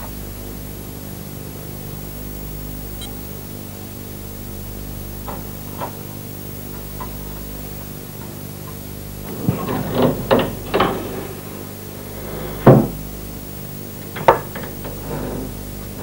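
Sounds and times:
steady low hum: 0.0 - 16.0
food bowls clattering: 9.2 - 13.0.

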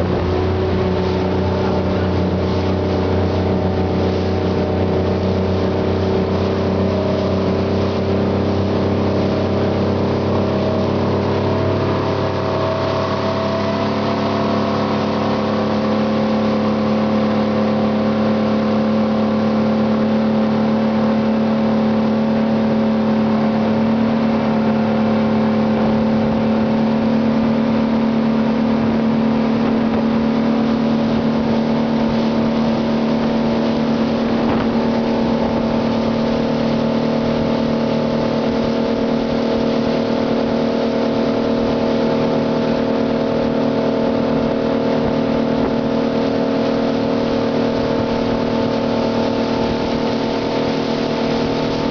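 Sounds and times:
speedboat engine running: 0.0 - 51.9
water churning along hull: 0.0 - 51.9.

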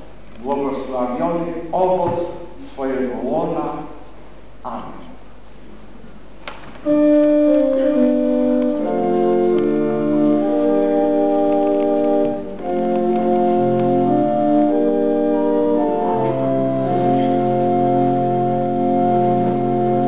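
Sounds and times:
organ playing sustained chords: 6.8 - 20.0.

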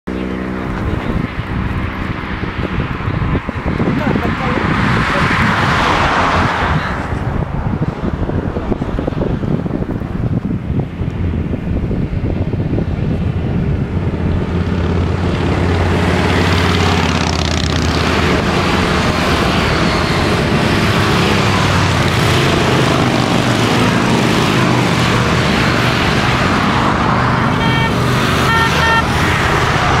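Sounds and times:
motorcycles riding past: 10.8 - 30.0
vehicle horn toots: 27.3 - 29.6.

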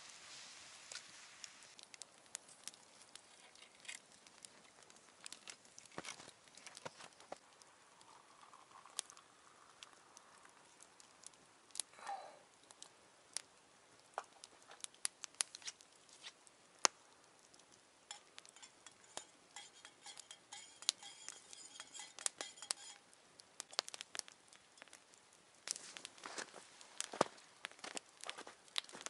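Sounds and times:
campfire crackling and popping: 0.0 - 29.0
spoon clinking in metal cup: 18.1 - 23.0.

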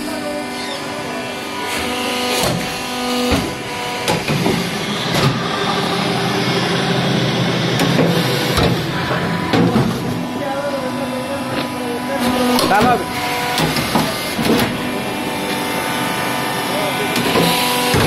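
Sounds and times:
machine humming with pitched tone: 0.0 - 18.0
sharp machine knocks: 2.3 - 5.5, 7.8 - 10.1, 12.5 - 14.9, 17.2 - 18.0.

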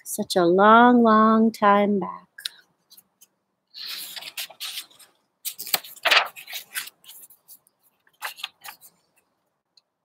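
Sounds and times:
book pages turning: 3.8 - 9.0.

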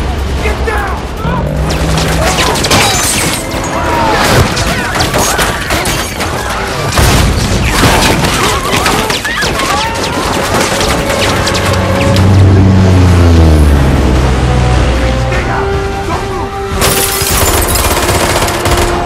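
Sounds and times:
booming impacts: 1.3 - 8.7
people screaming and shouting: 2.1 - 6.9, 8.3 - 11.0
rapid gunfire: 7.0 - 12.0, 17.3 - 19.0.

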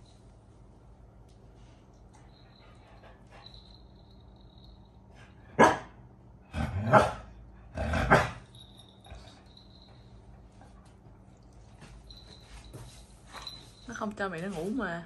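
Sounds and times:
dog barking: 5.6 - 6.0, 6.9 - 7.3.

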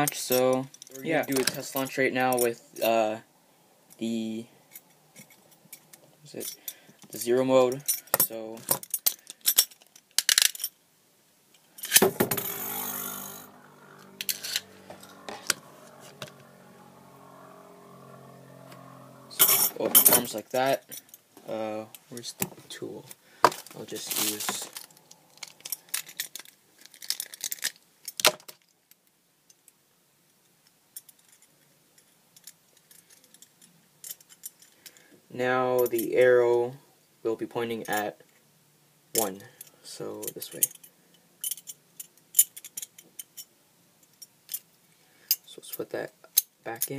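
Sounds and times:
spinning top whirring: 12.3 - 18.9.

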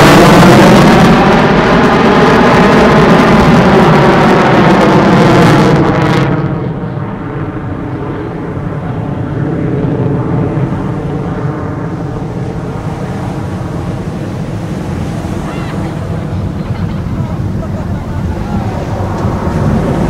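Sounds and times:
fighter jet passing: 0.0 - 20.0.

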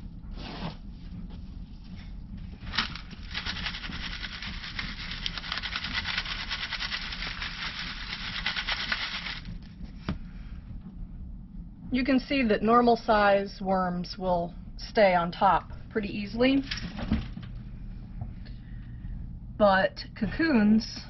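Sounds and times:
compost rattling through sieve: 2.6 - 9.6.

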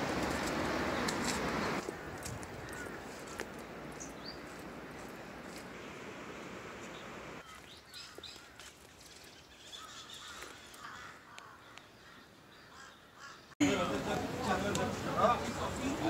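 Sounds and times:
small birds chirping: 1.0 - 5.6, 6.7 - 13.6.

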